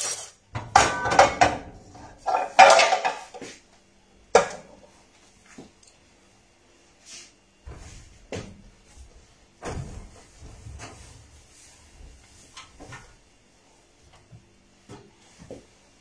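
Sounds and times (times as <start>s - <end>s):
knocks and bumps in kitchen: 0.5s - 3.4s, 9.6s - 11.2s.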